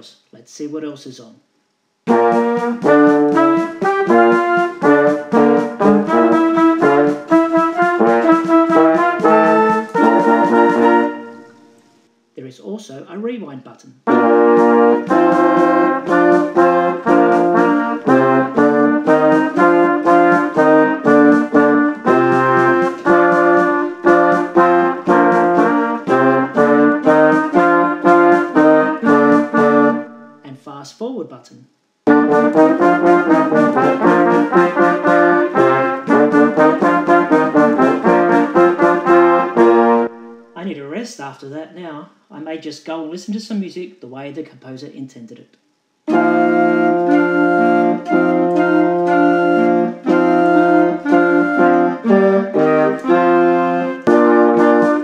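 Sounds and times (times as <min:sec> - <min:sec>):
brass band playing short chords: 0:02.0 - 0:12.0, 0:14.0 - 0:30.5, 0:32.1 - 0:40.6, 0:46.1 - 0:55.0.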